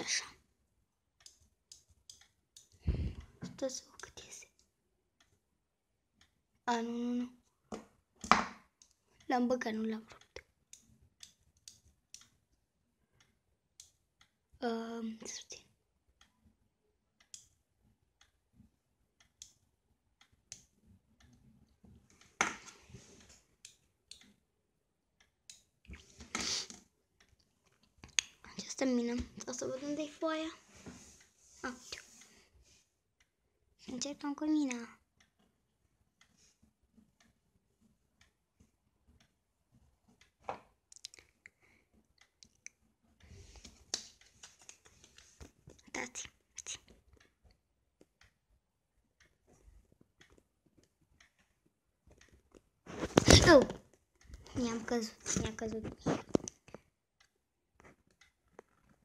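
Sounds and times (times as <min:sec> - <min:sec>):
pencil lead clicking: 0:01.2 - 0:02.8, 0:10.1 - 0:12.4, 0:17.2 - 0:17.6.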